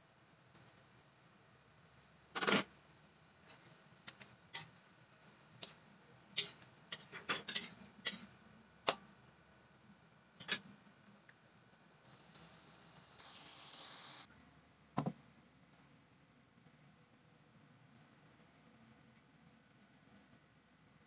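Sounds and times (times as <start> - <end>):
metal spatula scraping wok: 6.4 - 8.3.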